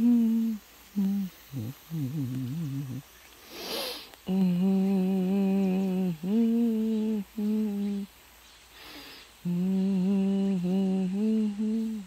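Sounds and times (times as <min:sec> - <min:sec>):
person humming: 0:00.0 - 0:08.2, 0:08.8 - 0:12.0
breath: 0:03.4 - 0:04.2, 0:08.7 - 0:09.4.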